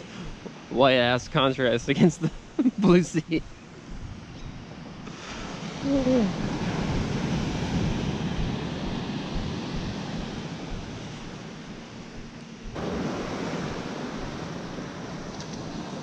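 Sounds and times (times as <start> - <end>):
wind rumbling on microphone: 3.2 - 16.0
ocean surf breaking: 12.8 - 16.0.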